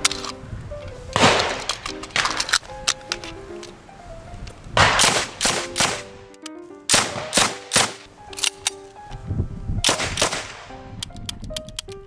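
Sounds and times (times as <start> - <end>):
background music: 0.0 - 12.0
submachine gun shots: 1.2 - 2.4, 4.8 - 6.0, 6.9 - 8.0, 9.9 - 10.7.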